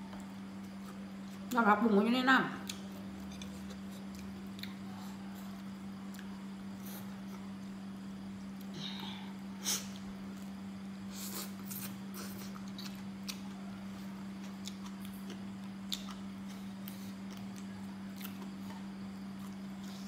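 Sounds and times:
steady low hum: 0:00.0 - 0:20.0
vegetables snapping and chewing: 0:02.6 - 0:04.8, 0:14.4 - 0:20.0.

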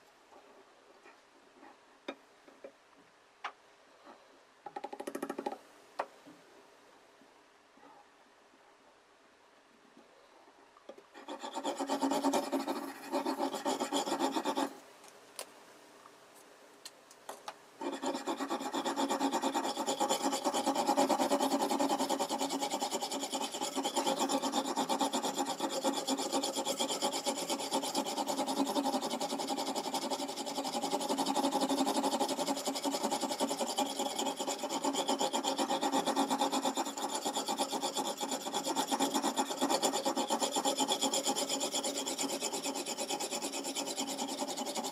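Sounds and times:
knife scraping on whetstone: 0:11.2 - 0:14.8, 0:17.8 - 0:44.9.

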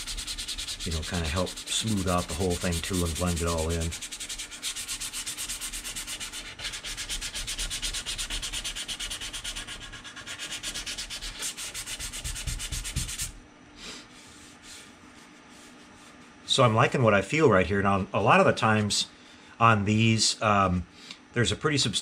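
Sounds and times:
faint brushing: 0:00.0 - 0:09.0, 0:14.2 - 0:16.5
sandpaper rubbing on plastic: 0:00.0 - 0:13.4.

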